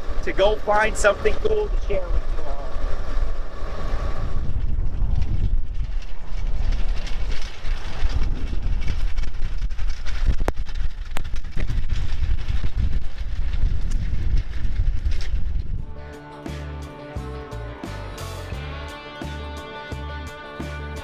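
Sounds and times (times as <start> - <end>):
rail speeder engine rumble: 0.0 - 9.7.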